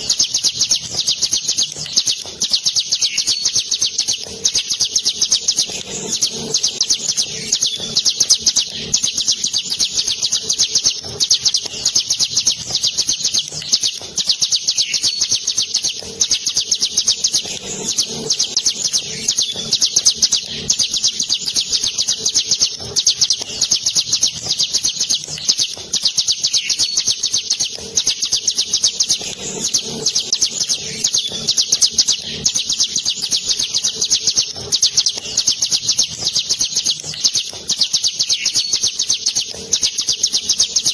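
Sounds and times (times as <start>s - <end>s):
songbird singing rapid high notes: 0.0s - 40.9s.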